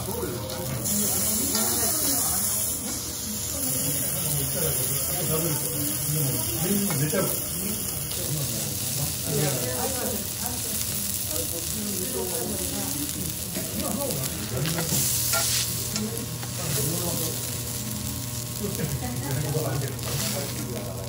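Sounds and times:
meat sizzling on a griddle: 0.0 - 21.0.

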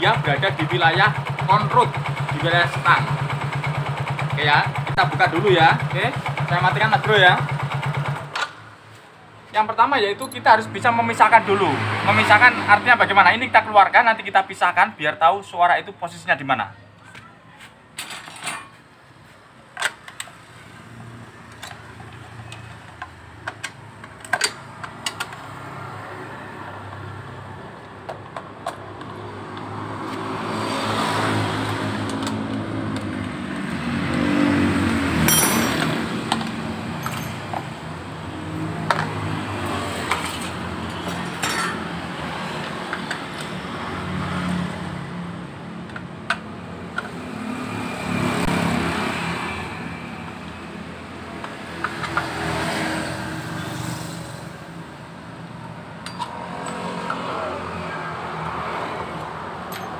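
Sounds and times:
metal tools clinking: 10.2 - 10.5, 18.0 - 18.8, 35.2 - 36.1, 37.0 - 37.6, 40.1 - 41.9, 56.0 - 57.2, 59.7 - 59.9.

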